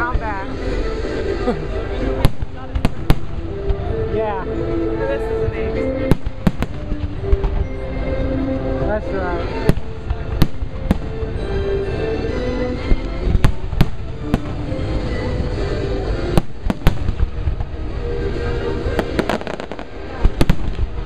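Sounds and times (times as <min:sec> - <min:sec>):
music: 0:00.0 - 0:21.0
fireworks bangs: 0:02.2 - 0:04.0, 0:06.0 - 0:07.8, 0:09.6 - 0:11.4, 0:13.0 - 0:21.0.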